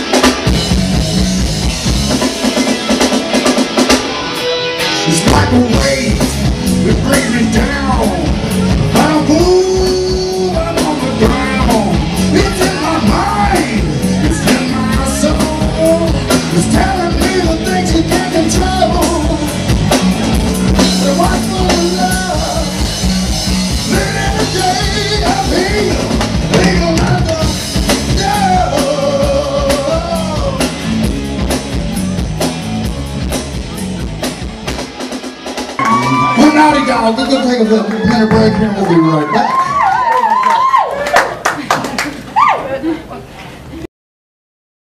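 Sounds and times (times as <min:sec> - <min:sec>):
rock band playing live: 0:00.0 - 0:40.0
lead singer's voice: 0:04.4 - 0:19.7, 0:20.6 - 0:30.9.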